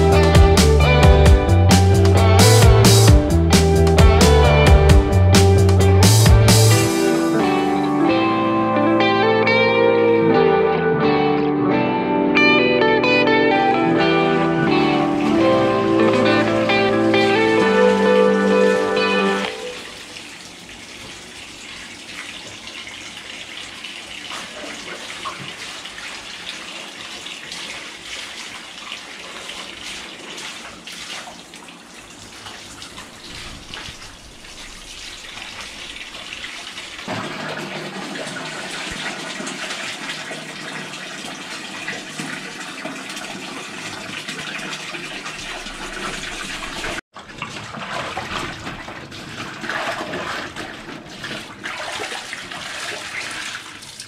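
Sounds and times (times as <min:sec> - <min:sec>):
water sloshing in basin: 0:19.5 - 0:54.0.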